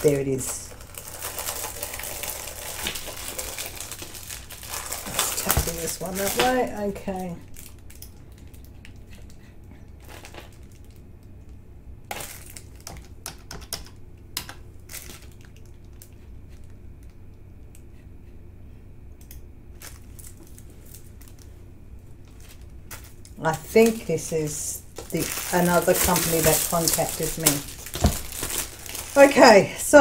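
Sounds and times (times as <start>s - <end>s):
plastic sleeve crackling: 0.0s - 9.3s, 22.2s - 29.8s
steady low hum: 0.0s - 30.0s.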